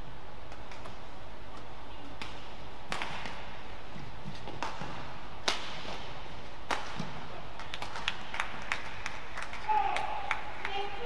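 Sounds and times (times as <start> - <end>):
steady hum of hall: 0.0 - 11.0
rackets striking shuttlecock: 0.5 - 3.6, 4.3 - 8.1.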